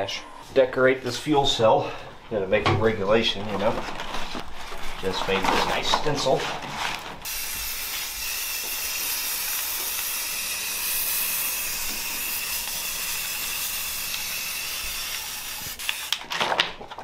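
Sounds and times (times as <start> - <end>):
spray can hissing: 7.3 - 16.2.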